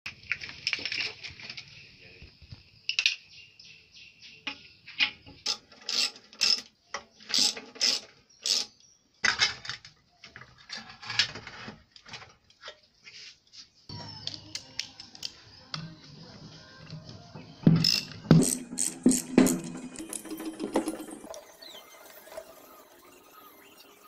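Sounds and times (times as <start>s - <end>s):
hand tools clicking on metal bolts: 5.0s - 8.7s, 17.8s - 21.4s.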